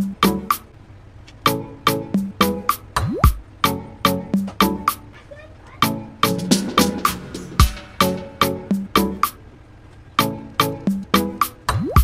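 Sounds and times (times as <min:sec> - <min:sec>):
music with percussive beat: 0:02.2 - 0:03.4, 0:06.2 - 0:09.4
deep bass hit: 0:06.2 - 0:09.3
rising sweep: 0:06.2 - 0:09.4.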